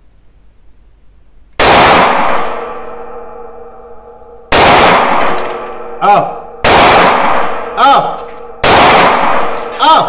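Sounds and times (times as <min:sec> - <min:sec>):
pistol shots: 0:01.6 - 0:03.5, 0:04.5 - 0:10.0.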